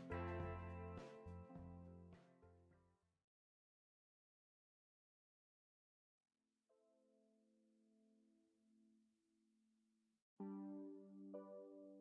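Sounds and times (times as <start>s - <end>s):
background music with sustained notes: 0.0s - 2.6s.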